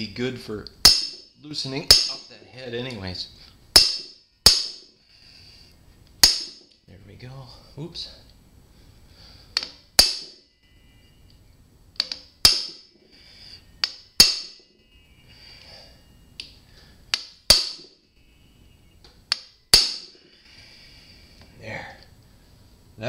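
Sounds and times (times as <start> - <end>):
hammer striking impact driver: 0.8 - 1.3, 3.8 - 4.9, 6.2 - 6.8, 9.6 - 10.4, 12.0 - 12.9, 13.8 - 14.6, 17.1 - 18.0, 19.3 - 20.3.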